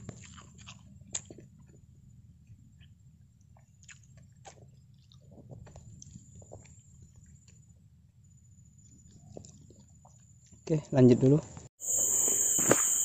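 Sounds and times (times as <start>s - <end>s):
person chewing: 0.0s - 7.7s, 8.8s - 10.6s.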